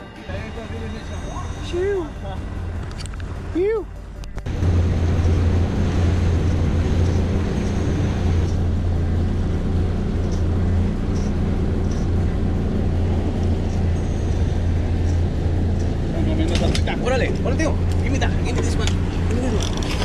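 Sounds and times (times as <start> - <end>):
outboard motor droning: 0.0 - 20.0
wind and water rushing: 4.5 - 8.8.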